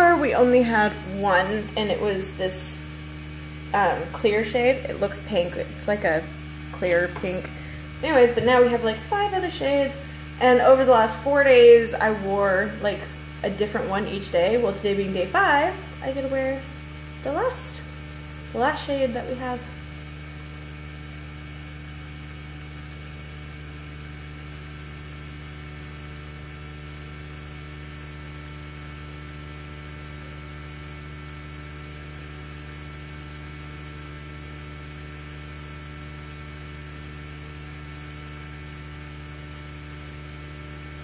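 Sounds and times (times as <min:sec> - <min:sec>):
electric fan humming: 0:00.0 - 0:41.0.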